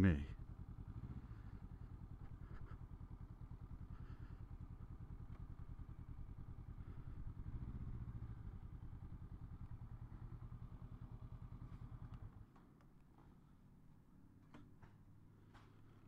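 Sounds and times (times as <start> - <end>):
motorcycle engine idling: 0.0 - 12.4.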